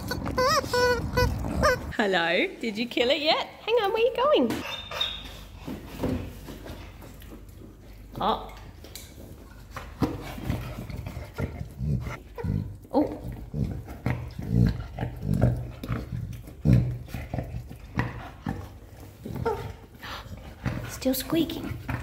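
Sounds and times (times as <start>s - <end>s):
squeaky toy squeaking: 0.0s - 1.9s
dog chewing: 0.0s - 2.0s, 6.6s - 22.0s.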